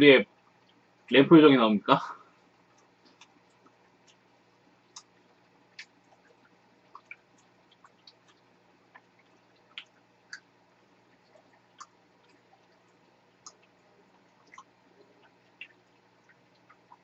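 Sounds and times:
chewing cake: 2.8 - 17.0
mouth clicks: 4.9 - 5.2.

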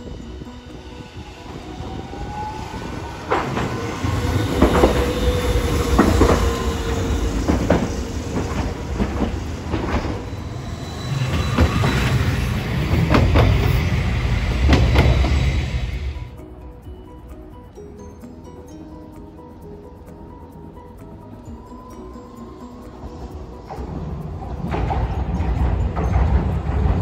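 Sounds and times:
tram wheels clacking over rail joints: 0.0 - 16.3, 23.0 - 27.0
tram rumble: 0.0 - 17.8, 18.4 - 27.0
thin steady whine: 0.0 - 25.6.

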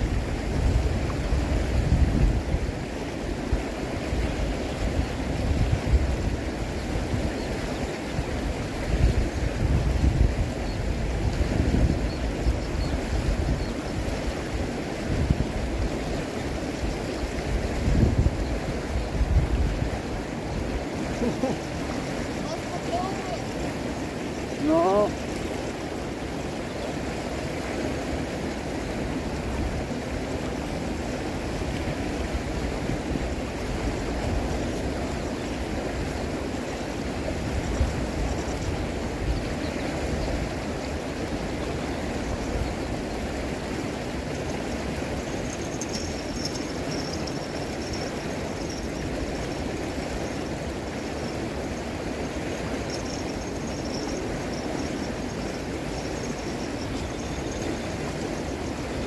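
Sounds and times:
flowing water rushing: 0.0 - 59.0
faint high-pitched chirping: 45.2 - 49.5, 52.7 - 58.8.

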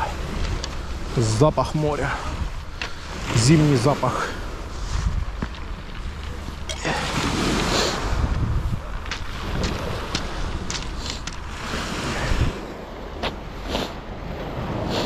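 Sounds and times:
small waves on a pebble beach: 0.0 - 15.0
wind buffeting the microphone: 0.0 - 15.0.

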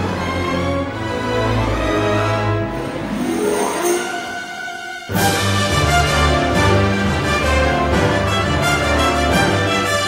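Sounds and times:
orchestra playing held chords: 0.0 - 10.0.

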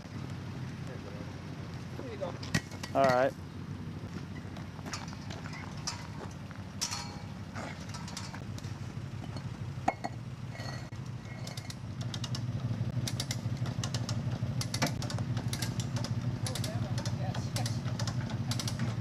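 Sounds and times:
vehicle engine idling: 0.0 - 19.0
light metallic clinks: 4.9 - 8.4.

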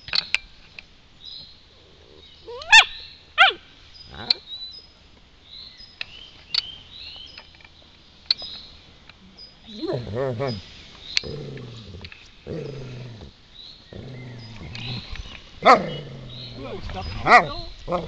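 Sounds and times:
dog low grumble: 9.7 - 18.0.

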